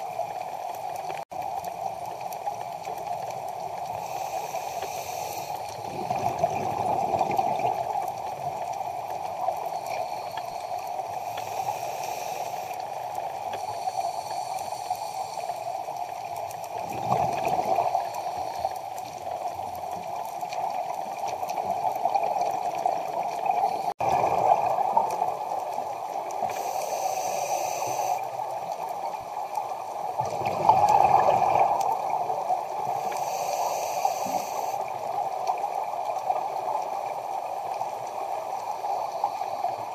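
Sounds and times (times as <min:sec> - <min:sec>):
steady underwater noise: 0:00.0 - 0:39.9
bubbles gurgling: 0:05.8 - 0:08.5, 0:16.8 - 0:18.2, 0:21.7 - 0:26.0, 0:30.1 - 0:32.8
regulator hissing: 0:09.8 - 0:12.8, 0:26.5 - 0:28.3, 0:32.9 - 0:34.8.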